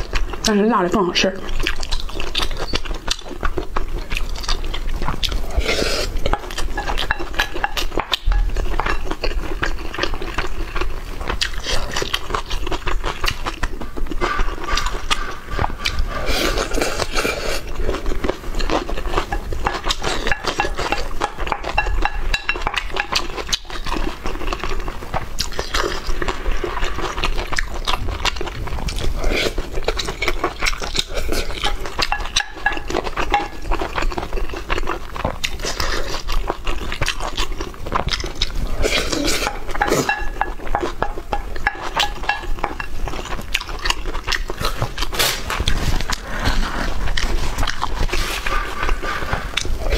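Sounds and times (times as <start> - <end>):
chewing and biting food: 0.0 - 0.5, 1.4 - 49.9
utensils clinking against bowls: 6.2 - 9.1, 18.7 - 23.5, 30.9 - 34.0, 38.9 - 43.3.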